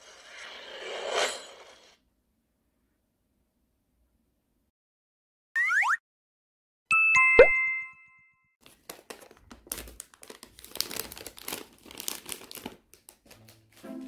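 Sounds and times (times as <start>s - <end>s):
plastic bag crinkling: 8.6s - 13.9s.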